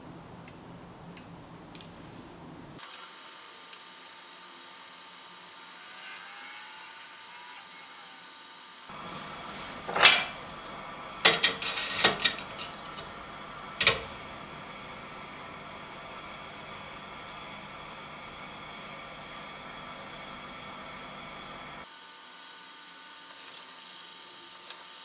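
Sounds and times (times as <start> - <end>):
gas torch hissing: 8.9 - 21.9
metal clinks and knocks: 11.2 - 13.1, 13.8 - 14.2.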